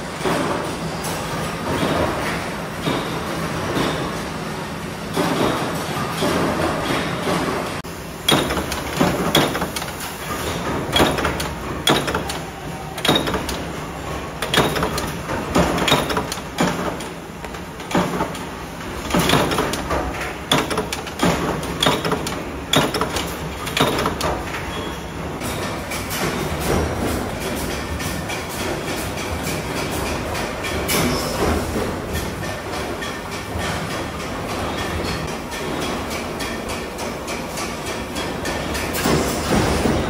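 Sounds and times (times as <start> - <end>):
punch presses stamping metal: 8.2 - 13.8, 14.4 - 24.6.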